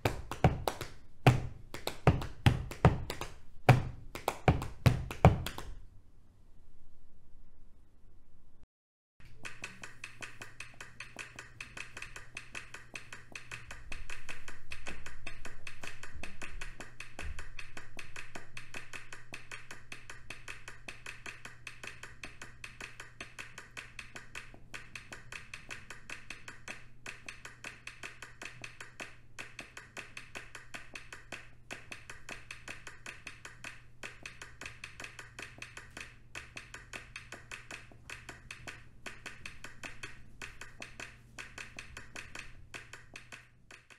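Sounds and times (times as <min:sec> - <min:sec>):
rapid ticking clicks: 0:09.2 - 0:43.9.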